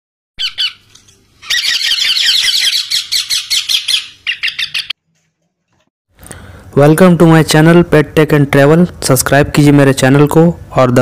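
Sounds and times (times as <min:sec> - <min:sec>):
parakeet chicks squawking: 0:00.4 - 0:05.0.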